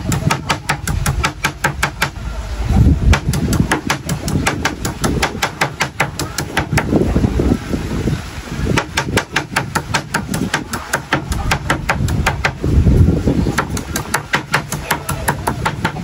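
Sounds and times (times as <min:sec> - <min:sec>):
rapid chopping knocks: 0:00.0 - 0:02.2, 0:03.1 - 0:06.9, 0:08.8 - 0:12.6, 0:13.6 - 0:16.0
low rumble: 0:00.9 - 0:05.2.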